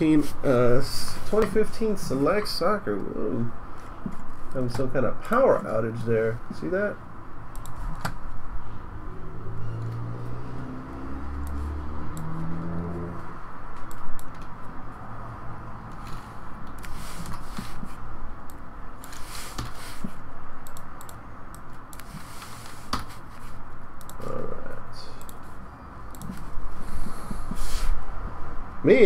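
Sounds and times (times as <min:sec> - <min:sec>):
low hum: 0:07.1 - 0:16.9
rustling or scraping: 0:15.9 - 0:18.0, 0:19.1 - 0:20.2, 0:22.0 - 0:23.7, 0:26.3 - 0:28.0.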